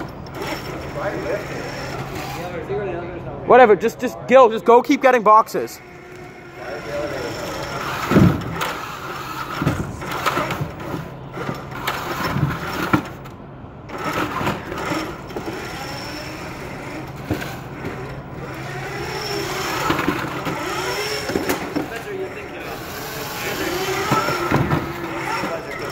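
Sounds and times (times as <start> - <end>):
robot drive motors whining: 0.0 - 2.7, 5.8 - 13.3, 13.9 - 25.9.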